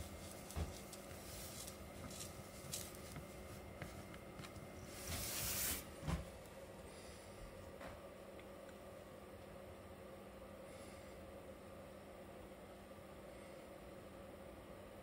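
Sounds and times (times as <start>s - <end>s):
plush toy rustling: 0.0s - 6.2s.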